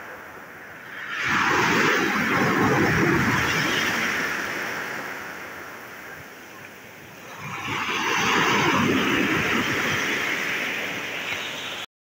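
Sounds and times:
sea waves washing up shore: 0:00.0 - 0:11.9.

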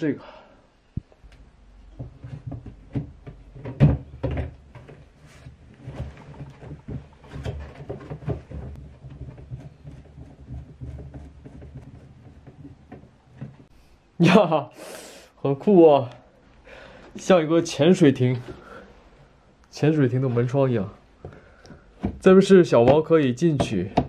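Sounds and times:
plastic knocking against cardboard: 0:01.9 - 0:05.0, 0:05.8 - 0:13.7, 0:21.2 - 0:24.0.

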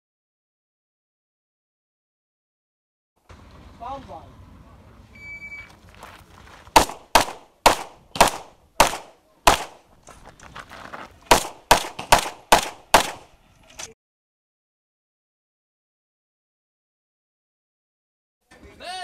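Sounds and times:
rapid pistol shots: 0:06.7 - 0:09.9, 0:11.3 - 0:13.3.

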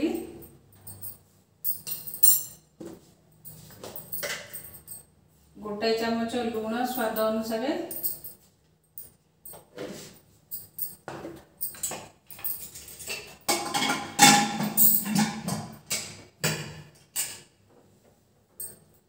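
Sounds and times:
metal clinks and knocks of pot: 0:00.1 - 0:02.7, 0:03.8 - 0:05.0, 0:10.5 - 0:17.4
short metallic ring: 0:00.8 - 0:02.7.

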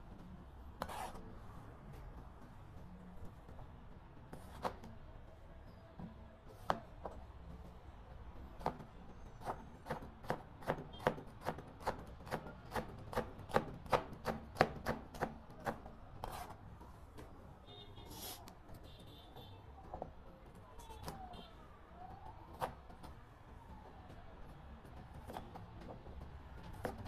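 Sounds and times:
knife chopping on plastic board: 0:06.5 - 0:06.9, 0:08.6 - 0:16.5, 0:26.6 - 0:27.0.

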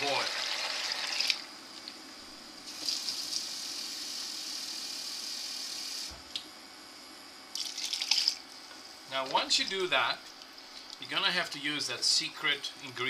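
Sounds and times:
water running from tap: 0:00.0 - 0:01.4, 0:02.7 - 0:06.1, 0:07.6 - 0:08.4.

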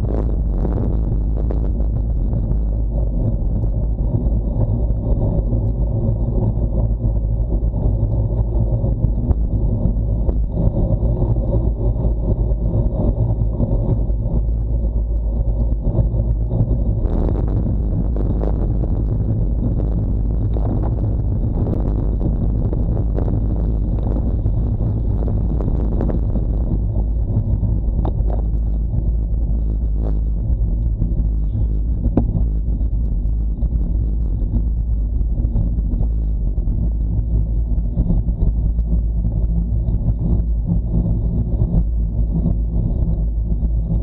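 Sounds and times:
harsh crackling bursts: 0:00.0 - 0:06.2, 0:11.9 - 0:44.0
wind buffeting microphone: 0:00.0 - 0:44.0
road rumble: 0:13.6 - 0:38.0.

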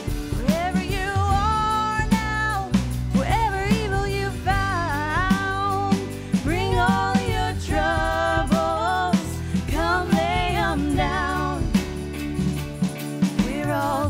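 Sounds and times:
acoustic guitar: 0:00.0 - 0:14.0
electric keyboard: 0:00.0 - 0:14.0
women singing: 0:00.4 - 0:12.2, 0:13.3 - 0:14.0.

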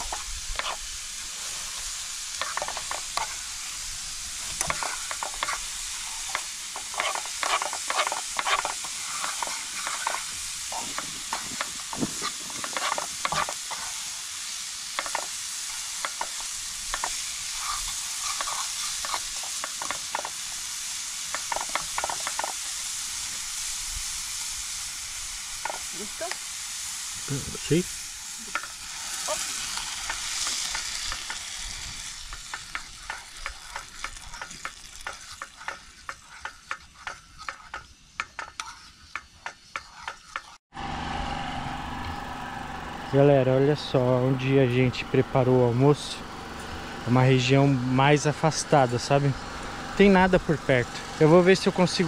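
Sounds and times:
metal fork scraping frying pan: 0:00.0 - 0:00.8, 0:02.4 - 0:03.4, 0:04.6 - 0:14.0, 0:15.0 - 0:20.3, 0:28.5 - 0:40.6
food sizzling: 0:00.0 - 0:52.0.

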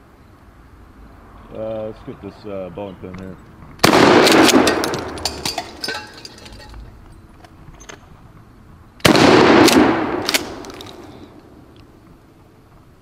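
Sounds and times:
shotgun blast echoing: 0:03.8 - 0:05.4, 0:09.0 - 0:11.0
sharp crack: 0:03.8 - 0:06.8, 0:09.0 - 0:11.9.

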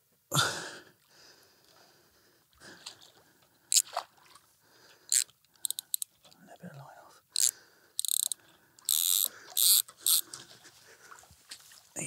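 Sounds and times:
quick clicks: 0:05.1 - 0:06.1.

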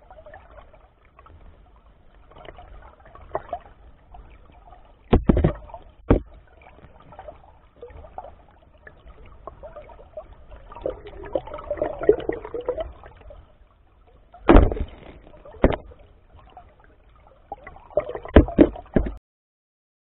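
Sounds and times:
muffled water gurgling underwater: 0:00.0 - 0:19.2
sharp loud knocks: 0:14.5 - 0:15.0.

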